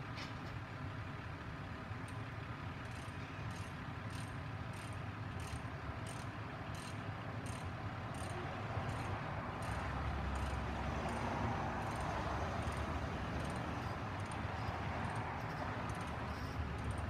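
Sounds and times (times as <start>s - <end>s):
truck engine rumbling: 0.0s - 17.0s
insect chirping: 13.4s - 17.0s.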